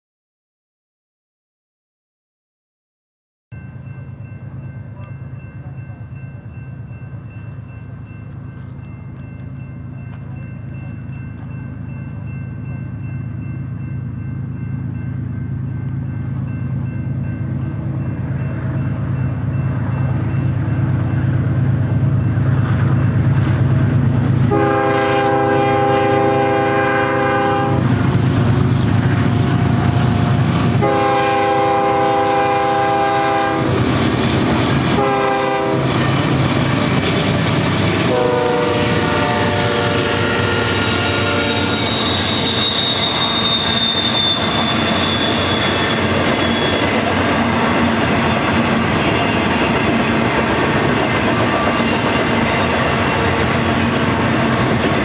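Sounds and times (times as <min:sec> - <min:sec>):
freight train rumbling by: 0:03.5 - 0:55.0
locomotive air horn blasts: 0:24.5 - 0:27.9, 0:30.8 - 0:33.8, 0:35.0 - 0:36.0, 0:38.0 - 0:43.5
high wheel squeal: 0:40.7 - 0:50.2, 0:51.2 - 0:54.4.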